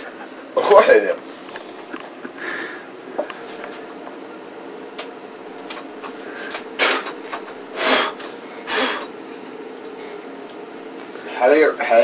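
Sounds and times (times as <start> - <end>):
man retching: 6.8 - 9.1.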